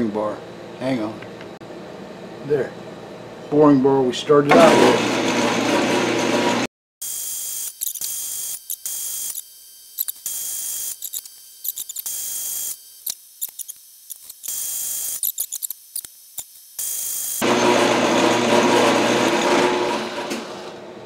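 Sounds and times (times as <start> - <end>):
metal lathe running: 4.5 - 6.7, 16.8 - 20.8.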